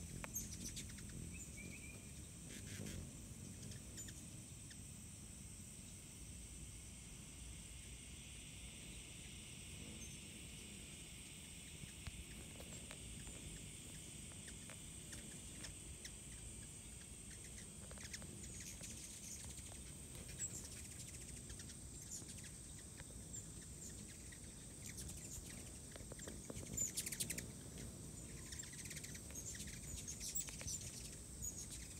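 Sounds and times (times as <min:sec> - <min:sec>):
bird chirps: 0:00.0 - 0:04.9, 0:11.2 - 0:31.9
high-pitched insect whine: 0:00.0 - 0:31.9
low insect buzz: 0:00.0 - 0:31.9.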